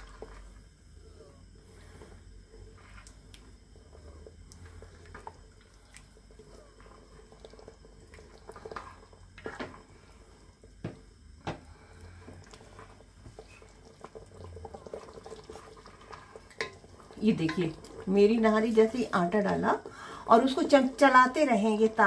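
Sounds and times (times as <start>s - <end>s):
liquid sloshing and dripping: 1.7s - 20.4s
wooden spoon stirring stew: 6.4s - 9.8s, 12.4s - 22.0s.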